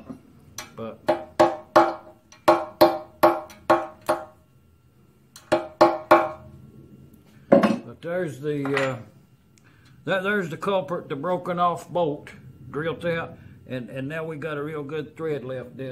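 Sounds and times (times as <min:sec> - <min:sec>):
hammer tapping on metal: 0:00.0 - 0:04.4, 0:05.4 - 0:06.4.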